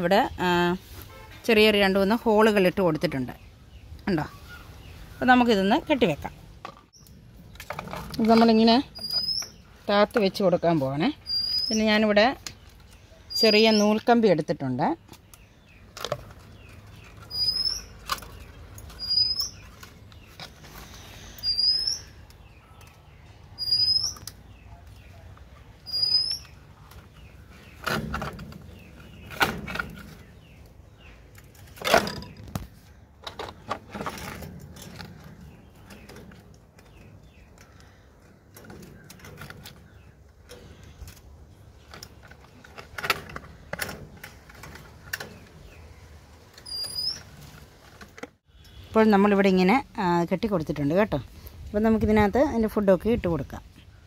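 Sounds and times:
short high bird chirps: 21.4s - 22.2s, 23.6s - 24.2s, 25.9s - 26.6s.

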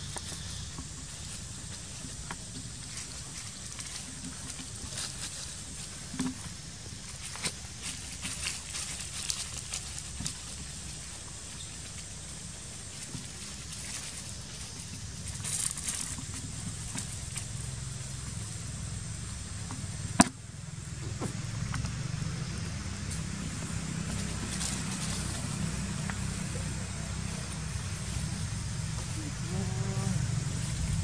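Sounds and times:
low outdoor rumble: 0.0s - 31.0s.

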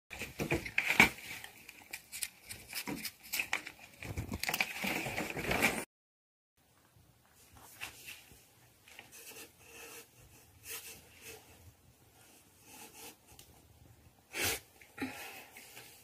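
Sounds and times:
cat rustling on paper: 0.2s - 5.8s.

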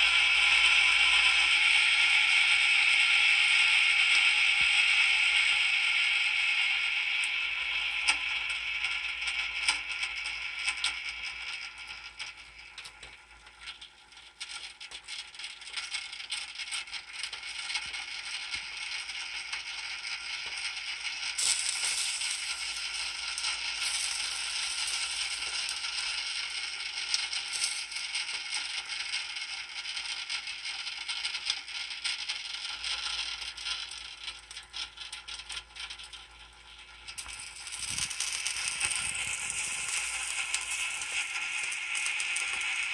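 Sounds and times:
roast sizzling and crackling: 18.7s - 29.8s, 32.6s - 42.9s.

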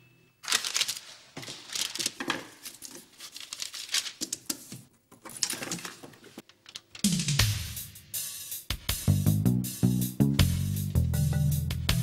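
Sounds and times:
paper crinkling: 0.4s - 7.1s.

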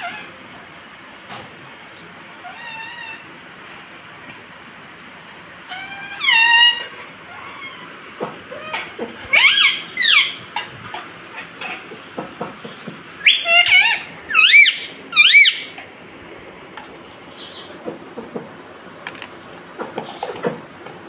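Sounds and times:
parakeet screeching: 0.0s - 0.4s, 2.4s - 3.4s, 5.7s - 7.9s, 8.5s - 10.6s, 13.2s - 15.8s.

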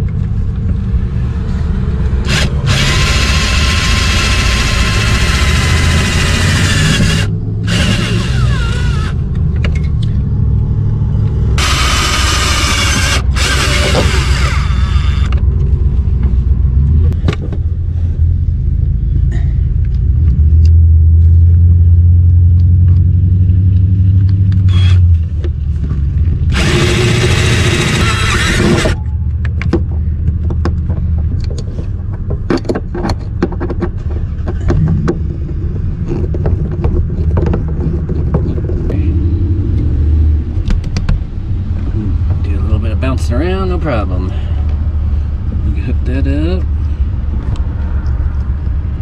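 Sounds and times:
steady low rumble: 0.0s - 49.0s
cordless drill driving screws: 2.2s - 9.2s, 11.6s - 15.4s, 24.7s - 25.0s, 26.5s - 29.0s
handling clicks and knocks: 28.8s - 39.0s.

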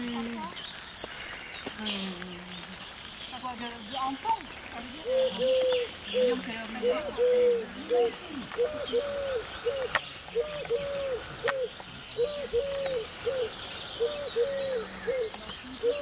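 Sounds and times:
small birds chirping: 0.0s - 16.0s
dove cooing: 4.8s - 16.0s.

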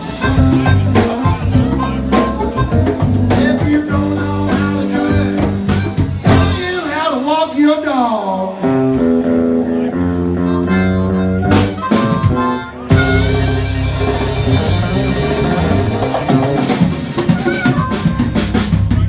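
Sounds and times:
djembe: 0.0s - 6.6s, 11.5s - 19.0s
blues harmonica wailing: 0.0s - 19.0s
drum kit: 0.0s - 19.0s
electric guitar: 0.0s - 19.0s.

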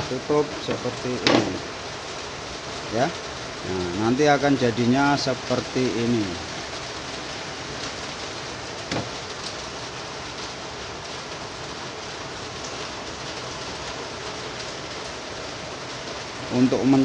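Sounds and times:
steady rain hiss: 0.0s - 17.0s
brief knock: 8.9s - 9.1s.

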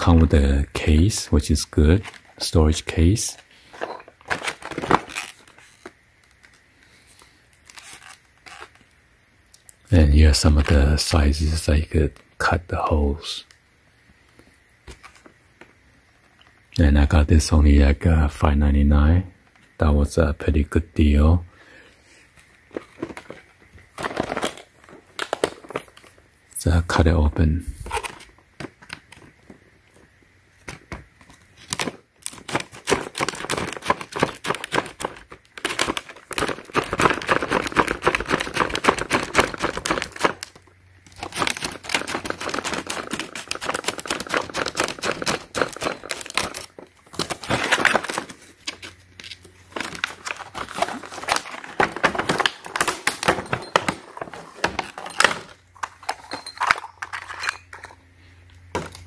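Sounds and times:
plastic crackling and crinkling: 1.9s - 11.1s, 22.3s - 26.2s, 27.7s - 58.0s
shears snipping plastic: 41.1s - 51.6s.

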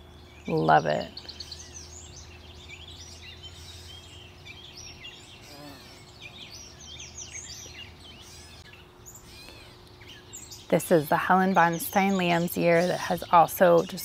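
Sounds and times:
songbirds singing and chirping: 0.0s - 14.0s.

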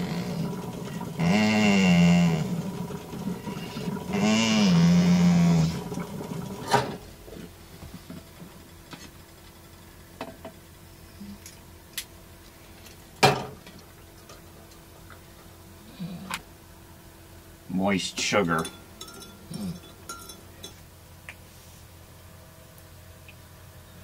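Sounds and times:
clicks and clinks of coffee-making: 18.5s - 20.8s.

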